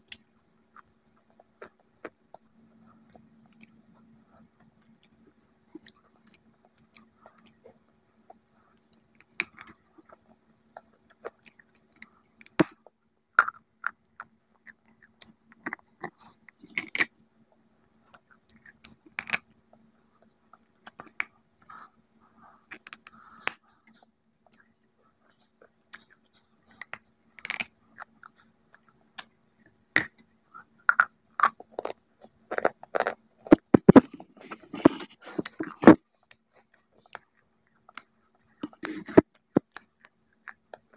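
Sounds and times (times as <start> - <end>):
crunching and chewing: 0.0 - 40.9.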